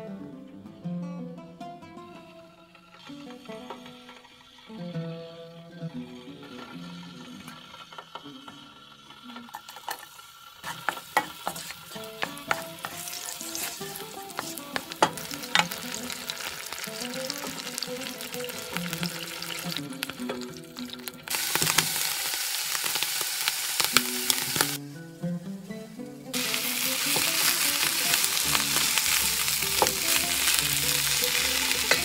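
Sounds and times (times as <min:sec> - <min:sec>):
soft music: 0:00.0 - 0:09.3, 0:11.9 - 0:21.8, 0:24.0 - 0:32.0
vegetables sizzling in hot oil: 0:02.8 - 0:04.8, 0:06.0 - 0:24.8, 0:26.3 - 0:32.0
oil spitting and popping: 0:06.4 - 0:24.8, 0:26.4 - 0:32.0.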